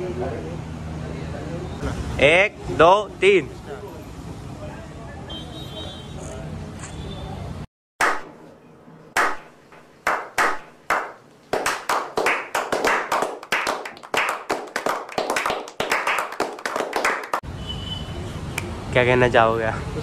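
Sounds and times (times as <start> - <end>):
people clapping: 8.0 - 8.3, 9.2 - 17.4.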